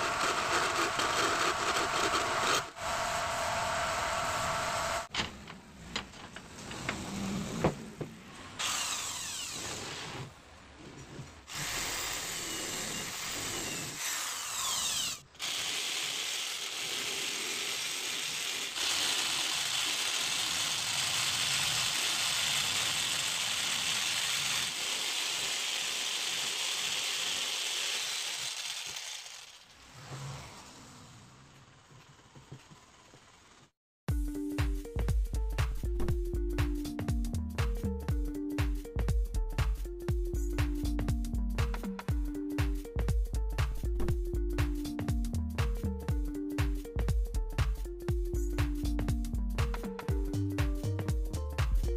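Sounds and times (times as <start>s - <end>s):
electric jigsaw cutting plywood: 0.0s - 5.1s, 8.6s - 10.3s, 11.5s - 29.7s
woodworking machine noise: 0.0s - 5.1s, 8.6s - 10.4s, 11.4s - 33.7s.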